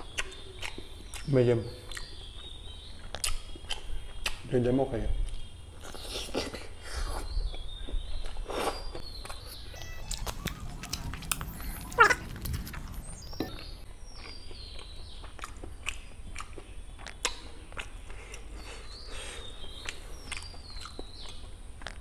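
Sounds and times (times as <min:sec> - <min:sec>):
wet chewing and lip-smacking: 0:00.0 - 0:04.5, 0:05.2 - 0:22.0
high falling squeal: 0:09.5 - 0:13.6.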